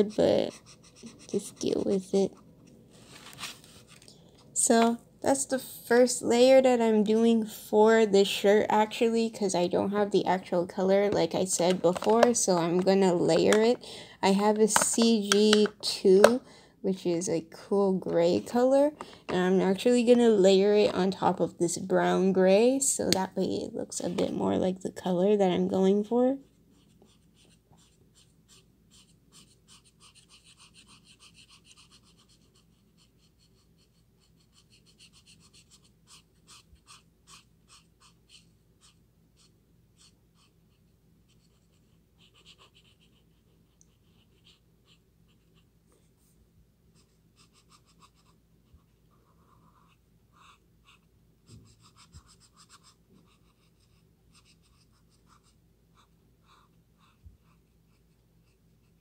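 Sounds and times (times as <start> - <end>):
marker scratching on paper: 0.0 - 2.5, 26.4 - 40.6, 41.3 - 45.6, 47.0 - 59.0.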